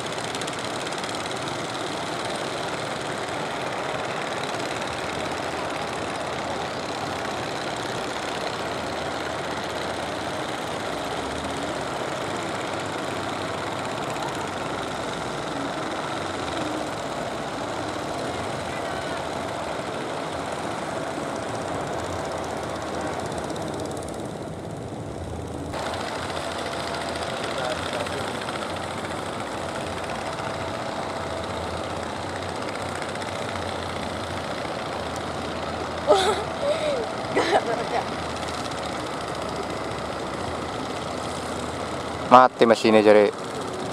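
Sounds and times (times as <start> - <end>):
boat engine droning: 0.0 - 43.9.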